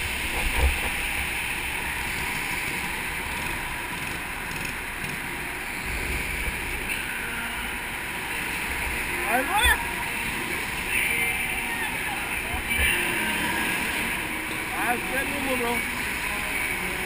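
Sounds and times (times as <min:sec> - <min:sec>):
go-kart engine and wind rushing: 0:00.0 - 0:17.0
low buffeting rumbles: 0:00.0 - 0:17.0.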